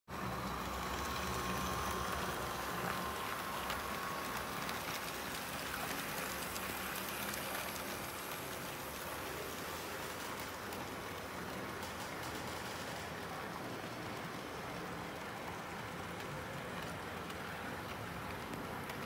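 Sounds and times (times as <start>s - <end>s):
faint electric motor whine: 0.2s - 11.5s
model train wheels rattling: 0.2s - 19.0s
clicks at rail joints: 9.3s - 19.0s.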